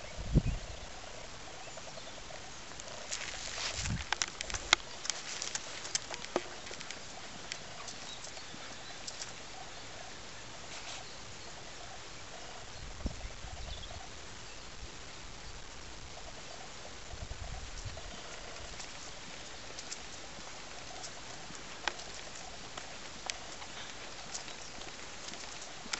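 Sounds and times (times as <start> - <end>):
wind rumbling on microphone: 0.0 - 8.9, 11.2 - 21.7
outdoor hiss: 0.0 - 25.9.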